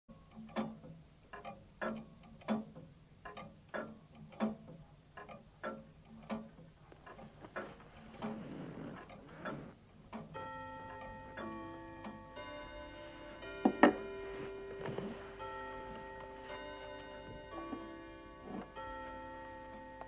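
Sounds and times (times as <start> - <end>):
grandfather clock ticking: 0.1 - 20.0
music with long held notes: 10.4 - 20.0.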